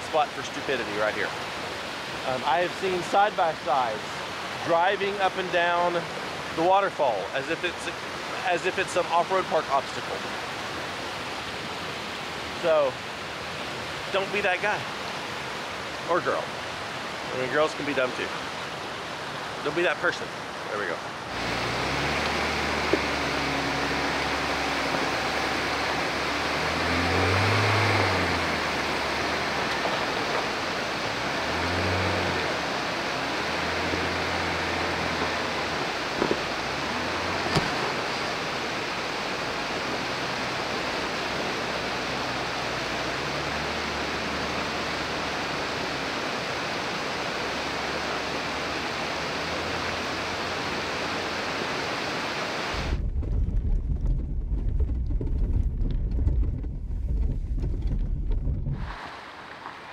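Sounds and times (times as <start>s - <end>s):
flowing water: 0.0s - 53.0s, 58.8s - 59.9s
car engine pulling away: 21.2s - 59.9s
sharp knocks: 37.5s - 37.8s.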